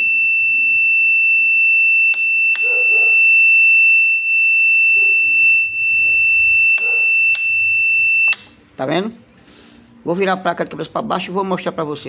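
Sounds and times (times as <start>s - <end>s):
high-pitched electronic tone: 4.2s - 8.5s.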